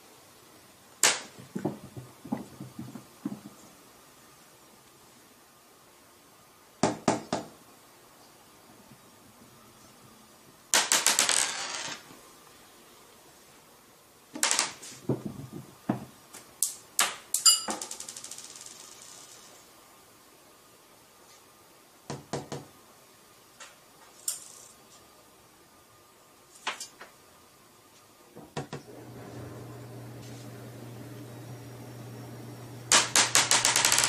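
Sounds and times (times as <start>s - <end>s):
marble clattering on hard floor: 10.8s - 12.1s, 14.4s - 16.0s, 17.4s - 19.4s, 32.9s - 34.0s.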